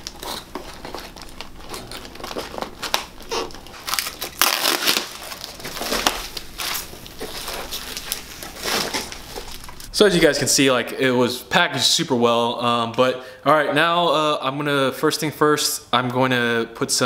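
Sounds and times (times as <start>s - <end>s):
wooden box cracking and creaking: 0.0s - 9.8s
packing rustling: 0.0s - 10.0s.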